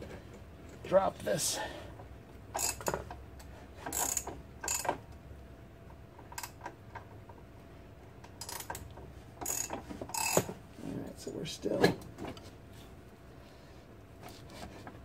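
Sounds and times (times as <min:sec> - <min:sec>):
ratchet clicking: 0:02.6 - 0:03.0, 0:03.9 - 0:04.9, 0:08.4 - 0:08.8, 0:09.4 - 0:10.5.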